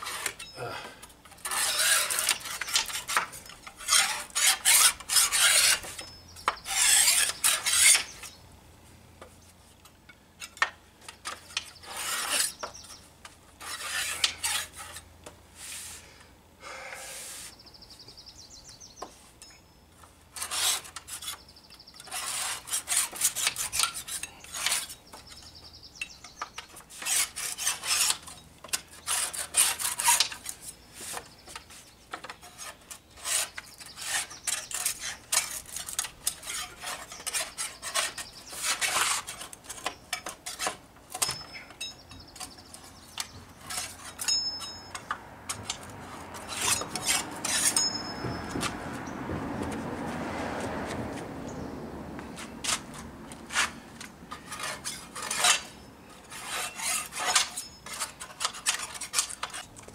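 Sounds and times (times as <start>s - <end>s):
hand scraper scraping wood: 0.0s - 8.4s, 9.3s - 17.6s, 20.3s - 51.4s, 52.1s - 59.9s.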